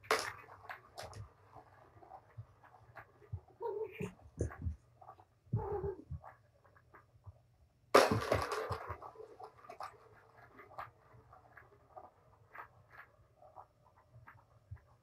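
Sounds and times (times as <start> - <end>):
cats scuffling: 0.0 - 7.4.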